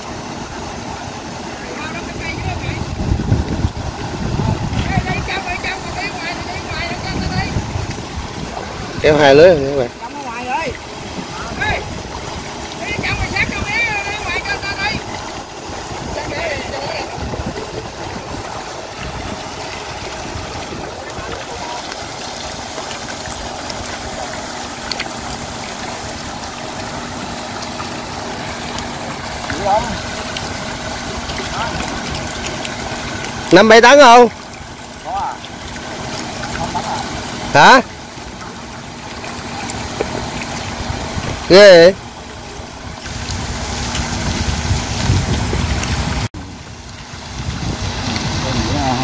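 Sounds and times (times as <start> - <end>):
low motor hum: 0.0 - 49.0
pond water rushing: 0.0 - 49.0
wind buffeting microphone: 2.0 - 10.0, 10.9 - 22.6, 40.2 - 41.5, 42.6 - 49.0.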